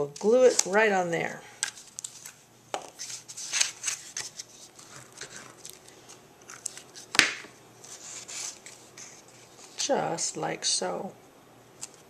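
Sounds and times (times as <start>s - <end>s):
paper rustling and sliding: 1.8s - 7.2s, 7.8s - 9.8s.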